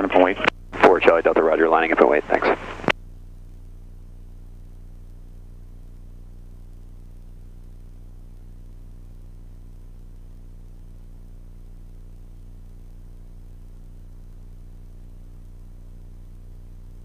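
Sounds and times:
propeller plane engine drone: 0:00.0 - 0:02.9
steady hiss: 0:00.0 - 0:02.9.

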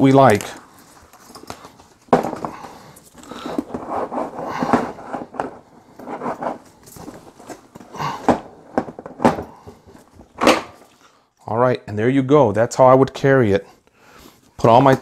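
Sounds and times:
tool bag handling noises: 0:00.0 - 0:11.2.

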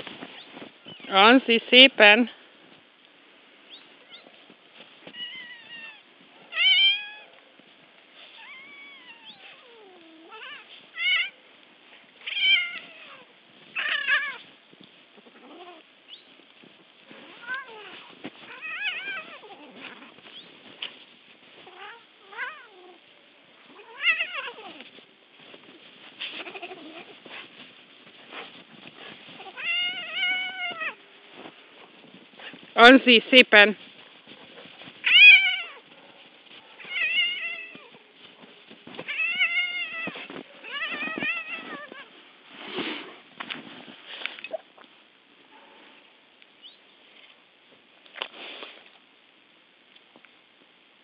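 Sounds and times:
cat meowing and yowling: 0:05.2 - 0:07.4, 0:08.4 - 0:11.4, 0:12.2 - 0:13.2, 0:13.8 - 0:14.4, 0:17.4 - 0:19.8, 0:23.8 - 0:24.8, 0:29.4 - 0:31.0, 0:35.0 - 0:35.8, 0:36.8 - 0:38.0, 0:39.1 - 0:42.1.

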